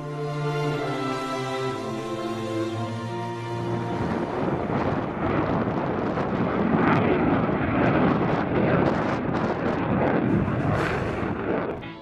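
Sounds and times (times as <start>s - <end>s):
fighter jet engine crackling: 2.7s - 12.0s.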